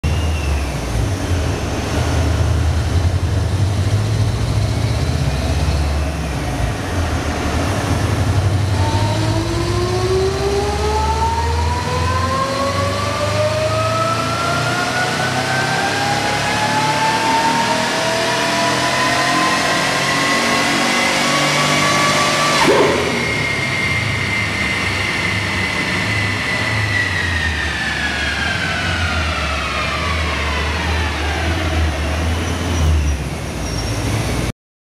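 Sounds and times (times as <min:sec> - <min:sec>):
supercharger whine rising: 0:00.1 - 0:34.5
engine rumbling under load: 0:22.5 - 0:30.5.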